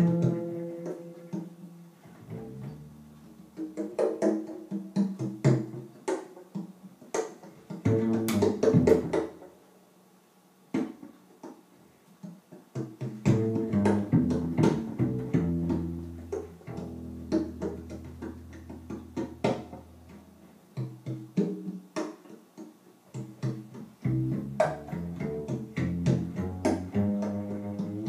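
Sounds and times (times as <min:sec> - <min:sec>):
upright bass plucked: 0:00.0 - 0:05.8, 0:07.8 - 0:09.5, 0:13.2 - 0:21.9, 0:23.4 - 0:28.0.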